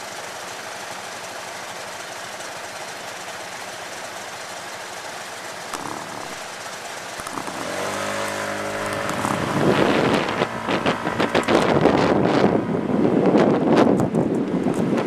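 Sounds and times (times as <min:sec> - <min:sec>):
vehicle engine humming: 0:00.0 - 0:15.0
wind noise on microphone: 0:07.4 - 0:15.0.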